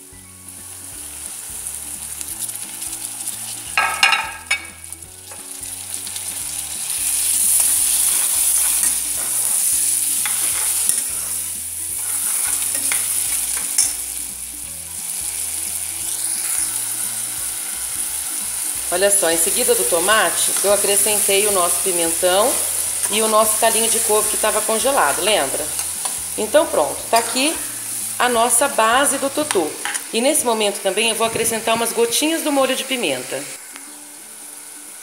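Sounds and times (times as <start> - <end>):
food sizzling in a pan: 0.0 - 35.0
metal spoon scraping a pan: 2.4 - 14.1, 16.1 - 18.2, 19.4 - 26.4, 27.1 - 28.0, 29.4 - 30.1.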